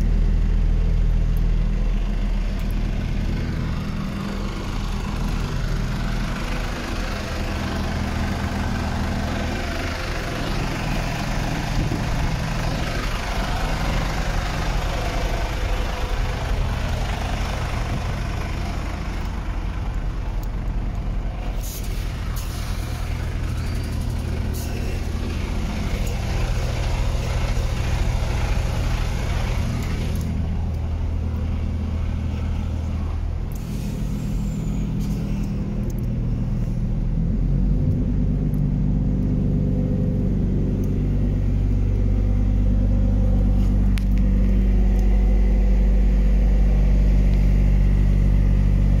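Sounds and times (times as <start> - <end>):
engine idling: 0.0 - 49.0
hiss: 21.5 - 23.2, 33.6 - 35.5.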